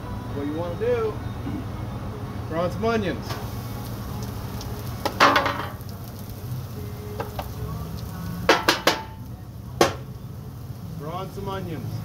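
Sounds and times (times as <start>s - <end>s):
metal utensil knocking on griddle: 5.0s - 5.8s, 8.5s - 9.2s, 9.8s - 10.0s.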